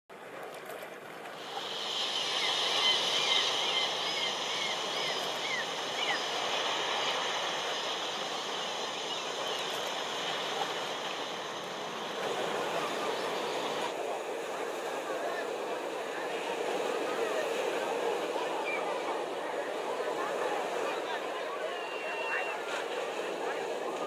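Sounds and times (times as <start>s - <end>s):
surf: 0.1s - 24.0s.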